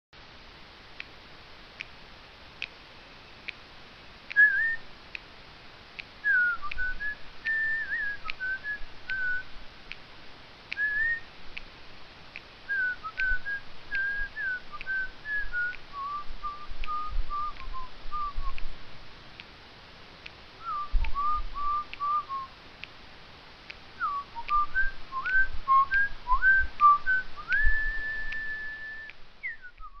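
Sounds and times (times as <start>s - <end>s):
faint steady tick: 0.2s - 30.0s
person whistling a tune: 4.4s - 4.8s, 6.2s - 9.5s, 10.8s - 11.3s, 12.7s - 18.6s, 20.6s - 22.5s, 24.0s - 30.0s.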